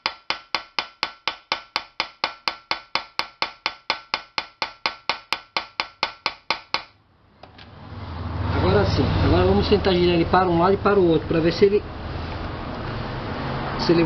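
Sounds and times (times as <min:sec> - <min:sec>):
metal-on-metal tapping: 0:00.0 - 0:07.7.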